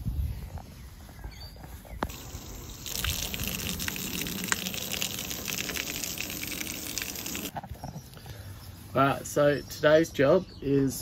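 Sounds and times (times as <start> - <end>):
hose spraying water on deck: 2.1 - 7.5.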